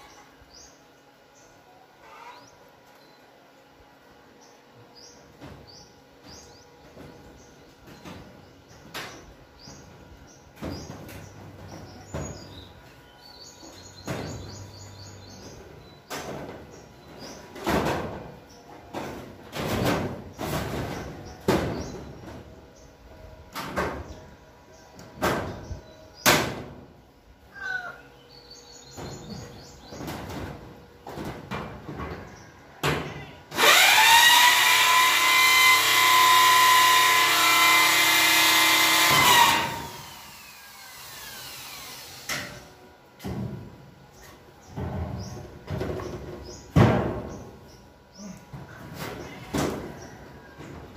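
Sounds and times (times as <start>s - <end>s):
knocks on steel roof: 17.5s - 22.4s, 44.7s - 47.6s
power drill running: 33.6s - 42.3s.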